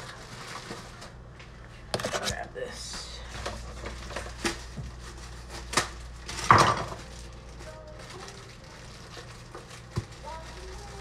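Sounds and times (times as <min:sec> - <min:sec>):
cookware and utensils clattering: 0:06.3 - 0:07.1.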